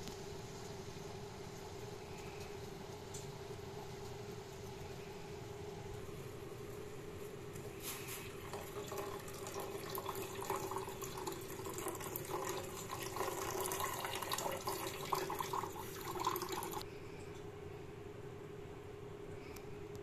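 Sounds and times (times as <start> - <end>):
steady hum: 0.0 - 20.0
milk pouring into saucepan: 8.3 - 16.8.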